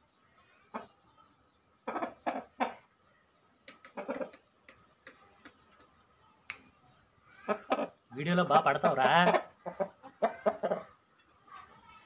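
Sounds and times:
rooster clucking: 1.8s - 2.9s, 3.7s - 4.6s, 7.4s - 11.6s.

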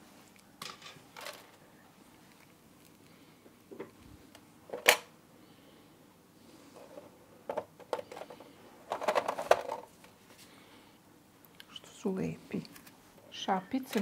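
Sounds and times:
cookies set on wire rack: 0.5s - 1.7s, 6.8s - 10.0s, 13.6s - 14.0s.

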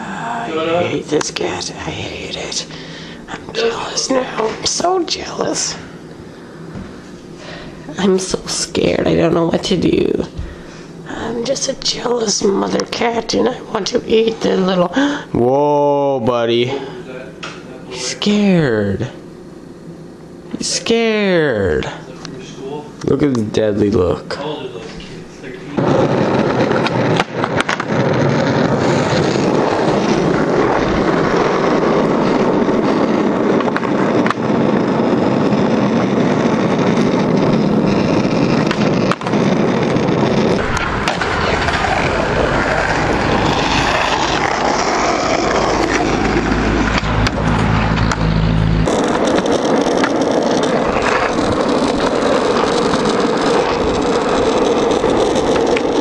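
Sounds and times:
skateboard wheels rolling on asphalt: 23.4s - 56.0s
skateboard clacks: 25.8s - 47.5s, 48.9s - 56.0s.

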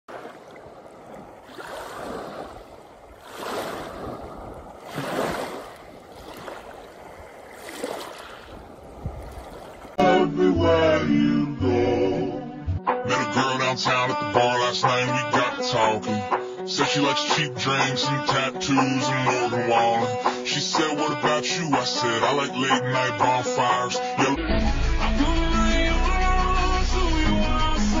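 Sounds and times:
loud music: 24.2s - 28.0s.

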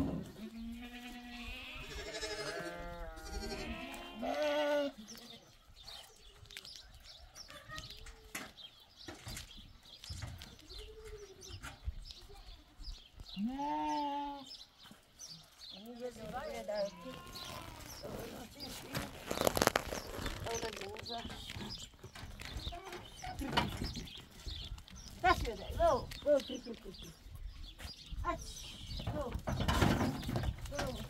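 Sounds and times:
goat kid and lamb bleating: 0.3s - 5.5s, 13.3s - 14.6s, 16.3s - 20.6s.

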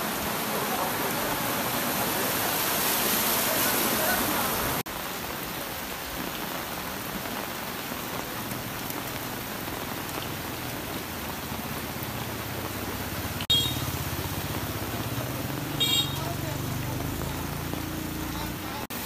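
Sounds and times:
heavy rain on water: 0.0s - 19.0s.

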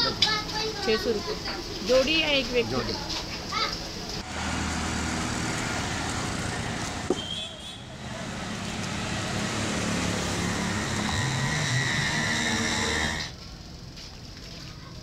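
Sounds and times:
traffic engines humming: 3.9s - 13.4s.

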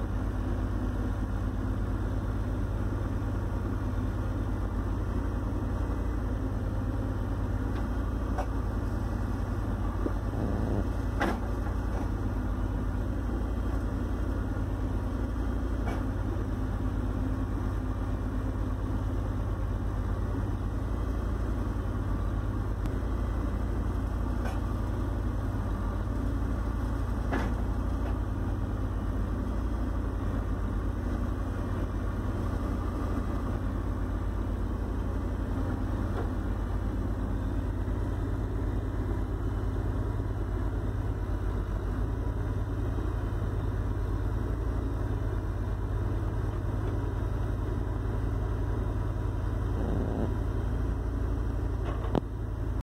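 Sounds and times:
diesel engine rumbling: 0.0s - 52.8s.

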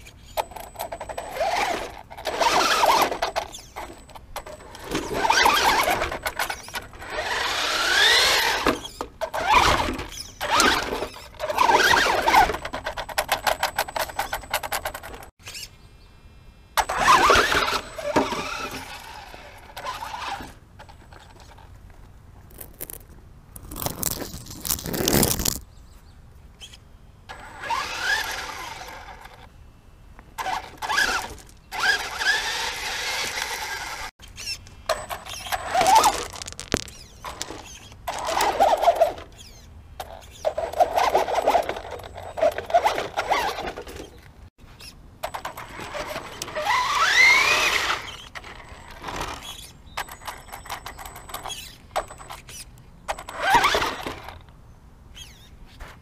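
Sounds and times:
electric motor whining: 5.0s - 10.9s, 27.3s - 29.5s.

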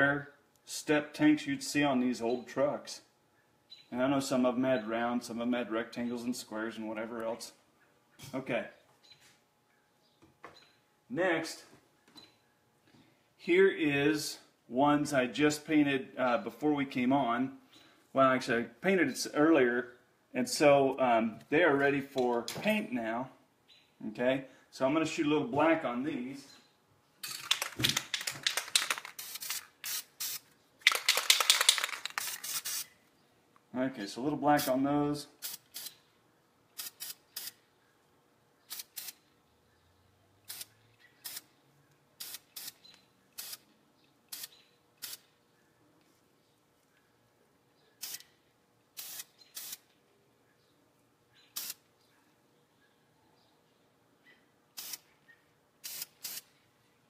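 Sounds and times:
aerosol spray can hissing: 28.7s - 32.9s, 35.4s - 35.9s, 36.8s - 37.6s, 40.5s - 41.4s, 42.2s - 42.8s, 43.4s - 43.6s, 49.0s - 49.8s, 51.6s - 51.8s, 54.8s - 55.0s, 55.8s - 56.5s.

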